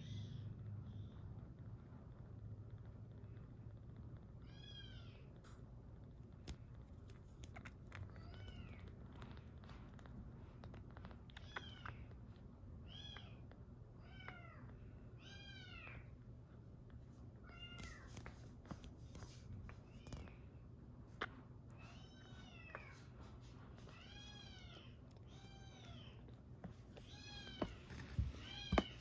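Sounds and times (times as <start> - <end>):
wet suckling clicks: 5.2 - 14.8.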